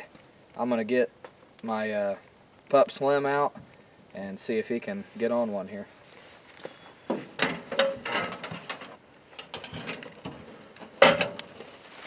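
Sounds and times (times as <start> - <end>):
metal dog box clanking: 7.4 - 10.3.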